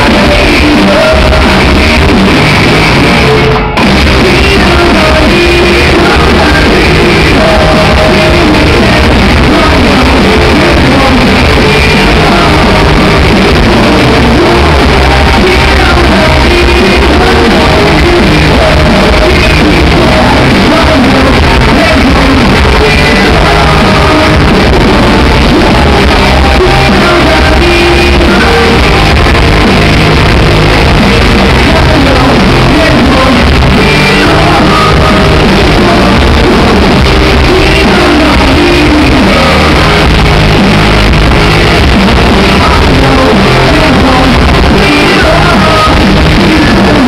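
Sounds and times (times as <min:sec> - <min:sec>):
rock band playing live: 0:00.0 - 0:47.0
singer singing and shouting: 0:00.0 - 0:47.0.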